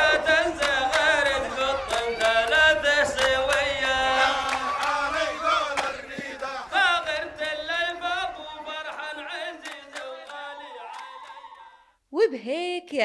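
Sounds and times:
voices singing a chant: 0:00.0 - 0:11.9.

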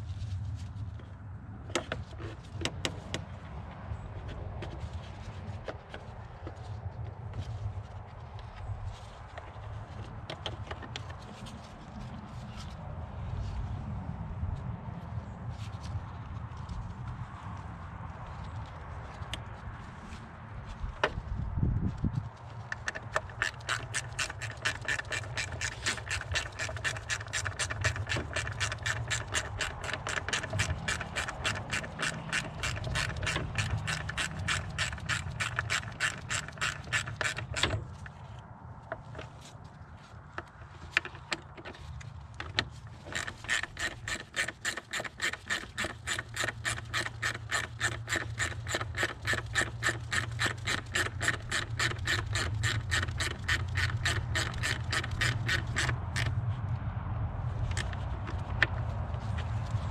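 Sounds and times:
hand ratchet clicking: 0:22.7 - 0:38.1, 0:40.4 - 0:56.4.

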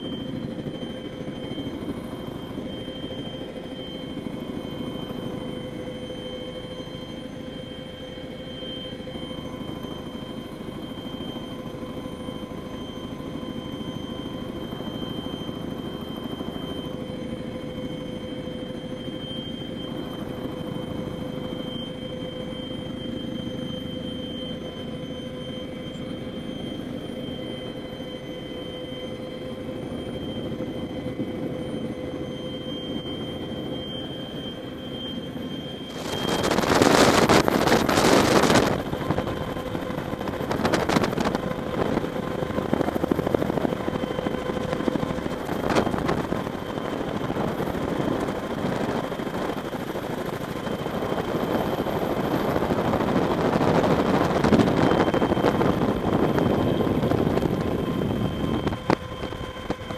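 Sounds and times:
helicopter rotor noise: 0:00.0 - 0:59.9
high turbine whine: 0:00.0 - 0:59.9
wind blasting across microphone: 0:35.9 - 0:59.9.

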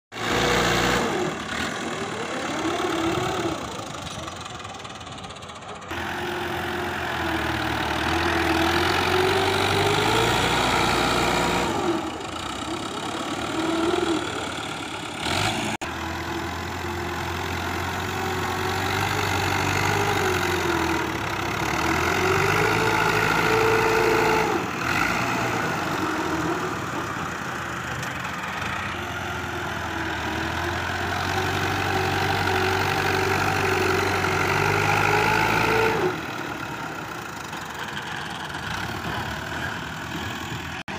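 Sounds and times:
tractor diesel engine under load: 0:00.1 - 0:40.9.

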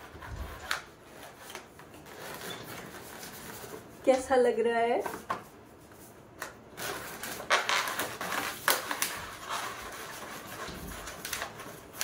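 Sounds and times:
balloon rubbing and squeaking: 0:07.2 - 0:11.4.

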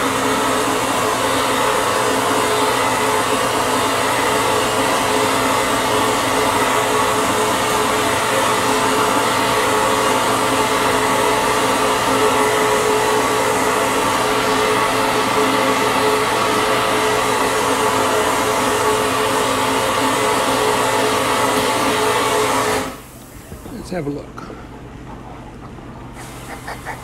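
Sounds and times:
vapor blasting nozzle hissing: 0:26.2 - 0:27.0.

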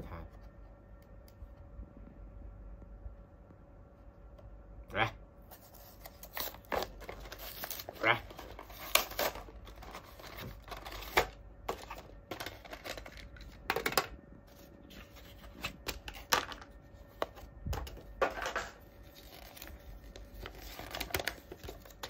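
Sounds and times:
packaging crinkling and rustling: 0:05.5 - 0:22.0.

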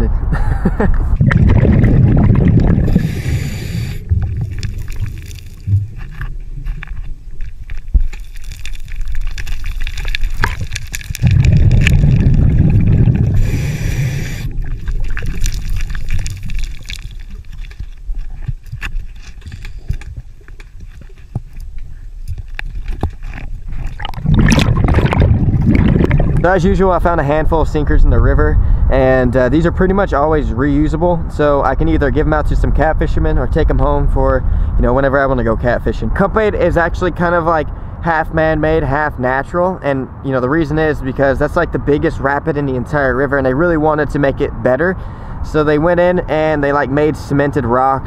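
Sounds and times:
exhaled air bubbling underwater: 0:01.0 - 0:27.2
hand scraping rocks underwater: 0:01.2 - 0:27.2
regulator hiss: 0:02.9 - 0:04.1, 0:13.4 - 0:14.5.

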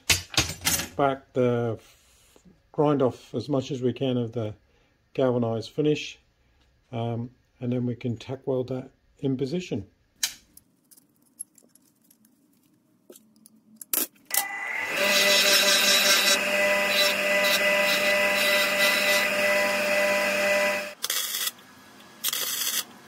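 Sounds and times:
bench grinder grinding steel: 0:14.3 - 0:21.5
welding crackles: 0:22.2 - 0:22.9.

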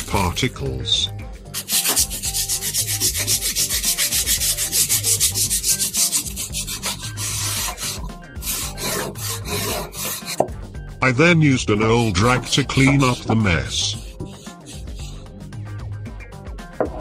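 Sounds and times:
foil scrubbing on steel: 0:01.6 - 0:10.4, 0:11.9 - 0:15.2.

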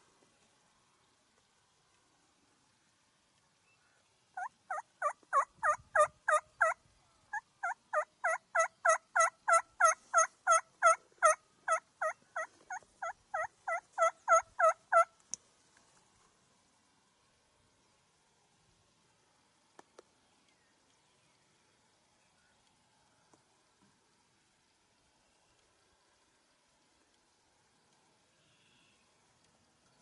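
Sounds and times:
turkey call yelps: 0:04.4 - 0:15.1.

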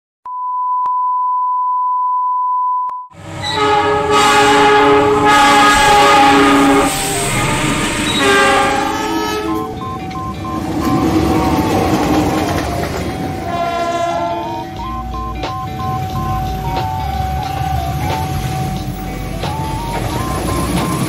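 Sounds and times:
steady test-tone beep: 0:00.3 - 0:03.1, 0:09.3 - 0:12.2, 0:14.4 - 0:21.0
passing train rumble: 0:03.2 - 0:21.0
locomotive air horn blasts: 0:03.4 - 0:09.8, 0:13.3 - 0:14.9.

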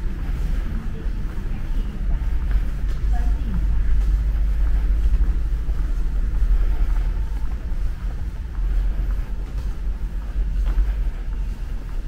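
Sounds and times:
bus engine noise: 0:00.0 - 0:12.0
low rumble of enclosed hall: 0:00.0 - 0:12.0.

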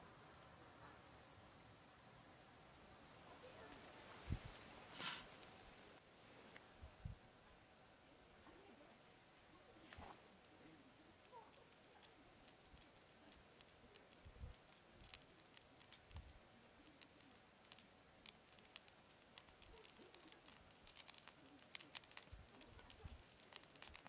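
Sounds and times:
squid crackling on grill: 0:10.1 - 0:24.0.

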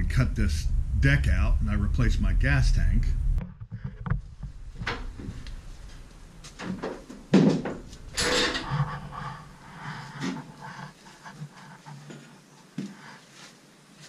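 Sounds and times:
footsteps on aluminium deck: 0:03.6 - 0:08.2.

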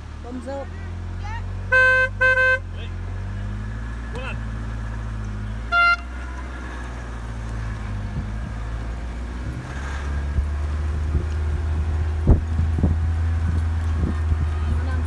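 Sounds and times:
horn toot: 0:01.6 - 0:02.9, 0:05.6 - 0:06.4.

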